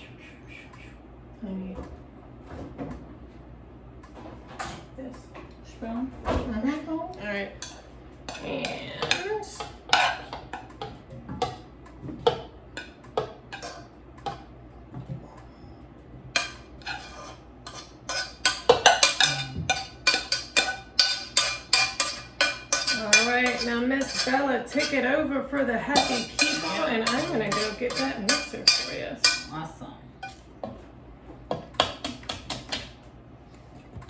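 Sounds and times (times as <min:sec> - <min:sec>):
metal spoon scraping saucepan: 0:07.6 - 0:10.6, 0:13.5 - 0:13.9, 0:16.4 - 0:29.5
spoon tapping: 0:26.0 - 0:29.5.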